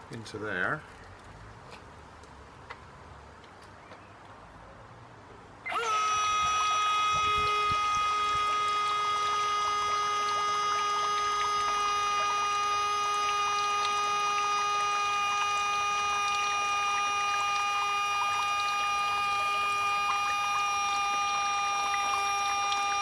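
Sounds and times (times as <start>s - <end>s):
churned water crackle: 0.0s - 4.1s, 5.7s - 23.0s
small electric motor whine: 5.7s - 23.0s.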